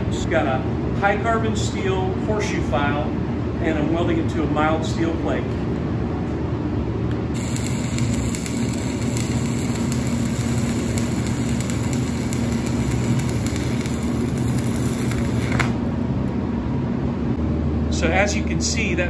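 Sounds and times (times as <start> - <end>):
stick welding arc crackling: 7.3 - 16.0.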